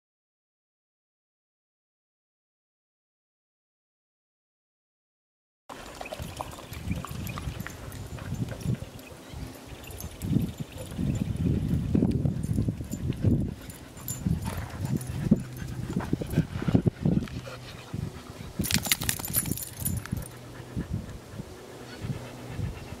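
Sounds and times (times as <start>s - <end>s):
dog breathing: 12.4s - 18.6s.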